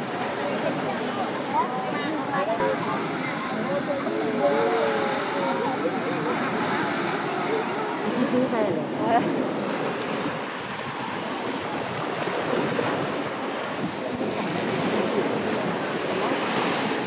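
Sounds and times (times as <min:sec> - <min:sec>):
surf waves washing onto beach: 0:00.0 - 0:17.0
wind on microphone: 0:06.5 - 0:17.0.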